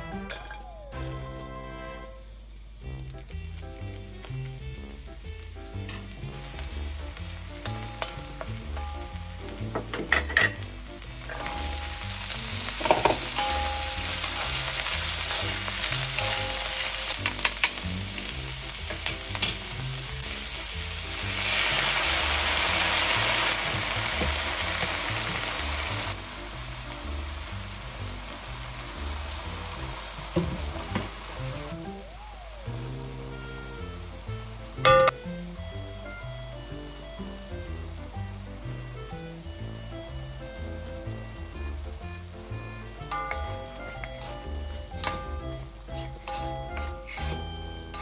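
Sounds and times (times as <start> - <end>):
oil sizzling in a wok: 0.0 - 48.0
stirring scrapes: 45.9 - 48.0.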